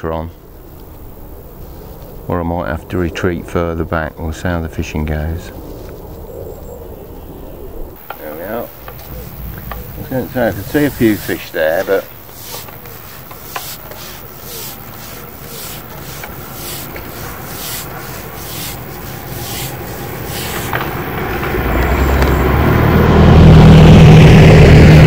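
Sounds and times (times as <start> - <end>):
pole sections sliding over roller: 8.0 - 22.4
loud low drone: 20.9 - 25.0.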